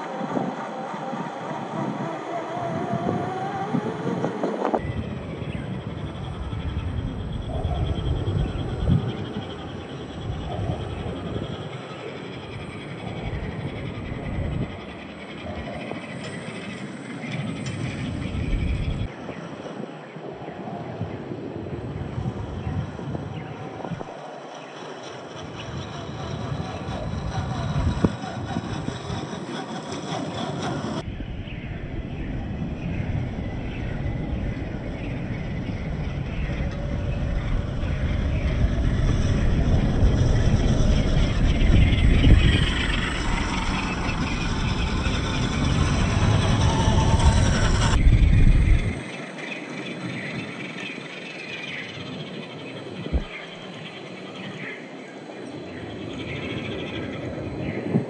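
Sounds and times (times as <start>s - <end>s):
electric motor and gears whining: 0.0s - 19.2s, 22.2s - 31.1s, 33.0s - 49.1s
rough noise with deep rumble: 0.0s - 19.4s, 20.9s - 54.9s
rc car electric motor running: 36.4s - 49.0s.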